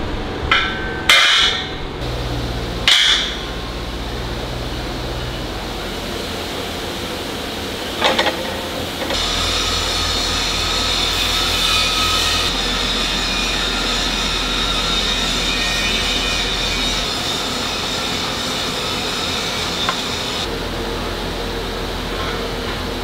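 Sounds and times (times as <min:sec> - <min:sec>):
factory machinery noise: 0:00.0 - 0:23.0
cast iron grates clanking: 0:00.4 - 0:02.0.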